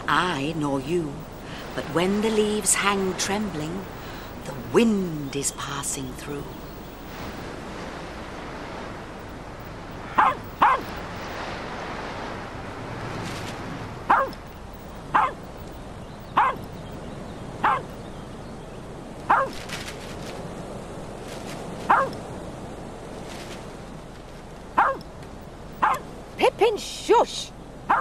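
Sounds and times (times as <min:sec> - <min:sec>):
wind rushing: 0:00.0 - 0:16.0
dog barking: 0:10.1 - 0:10.9, 0:14.1 - 0:14.4, 0:15.1 - 0:15.4, 0:16.4 - 0:16.6, 0:17.6 - 0:17.9, 0:19.3 - 0:19.6, 0:21.9 - 0:22.2, 0:24.8 - 0:25.0, 0:25.8 - 0:26.1.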